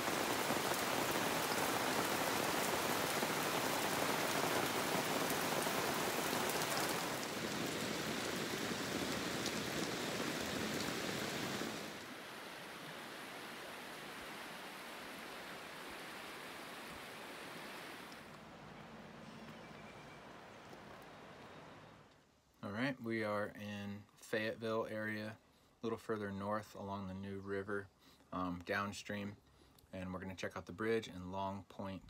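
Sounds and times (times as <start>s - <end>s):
heavy rain on foliage: 0.0s - 22.1s.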